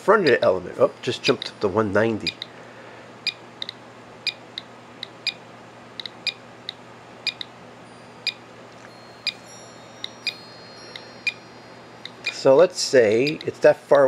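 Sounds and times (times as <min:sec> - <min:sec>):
geiger counter clicking: 0:02.2 - 0:02.5, 0:03.2 - 0:05.4, 0:06.0 - 0:07.5, 0:12.0 - 0:12.4, 0:13.2 - 0:13.6.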